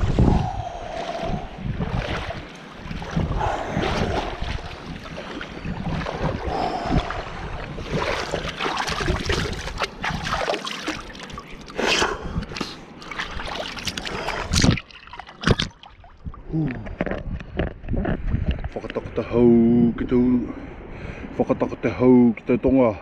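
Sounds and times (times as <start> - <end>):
sea water sloshing and splashing: 0.1 - 16.5
water splashed onto face: 7.8 - 15.9.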